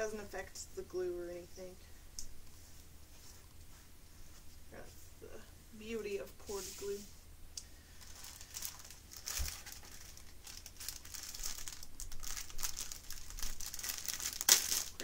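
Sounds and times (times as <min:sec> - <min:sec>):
plastic bags crinkling: 0:07.9 - 0:15.0.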